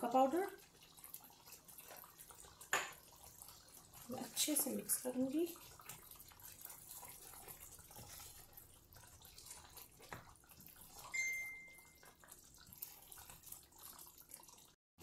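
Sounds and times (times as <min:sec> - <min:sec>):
gravy bubbling: 0:00.0 - 0:14.8
spatula scraping pan: 0:05.7 - 0:11.1
steady high tone: 0:11.2 - 0:11.8.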